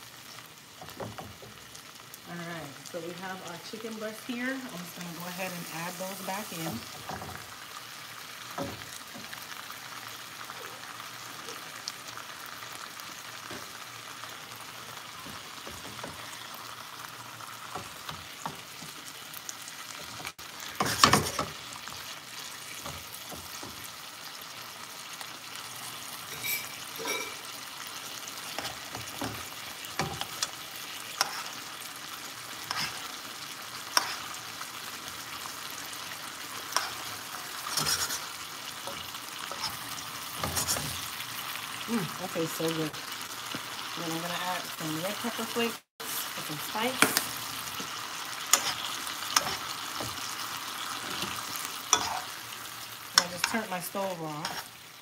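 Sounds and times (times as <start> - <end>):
food sizzling in skillet: 0.0 - 55.0
spatula and spoon scraping pan: 4.1 - 7.7, 20.0 - 24.4, 25.6 - 42.7, 43.4 - 54.9.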